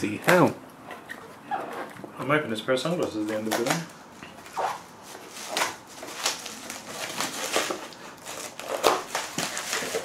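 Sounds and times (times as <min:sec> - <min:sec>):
bubble wrap crinkling: 0:03.2 - 0:10.0
cardboard rustling: 0:03.2 - 0:10.0.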